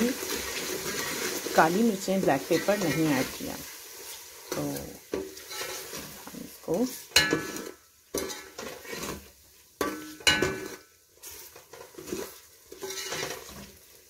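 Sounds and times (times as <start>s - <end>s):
spoon stirring in a cooking pot: 0.1s - 14.0s
spoon clinking against pot: 9.8s - 10.8s.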